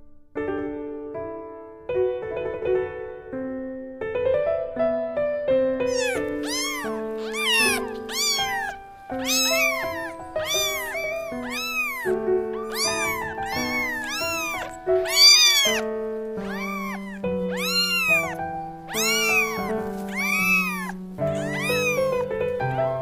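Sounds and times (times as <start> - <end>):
piano music: 0.9 - 23.0
kitten mewing: 5.9 - 22.4.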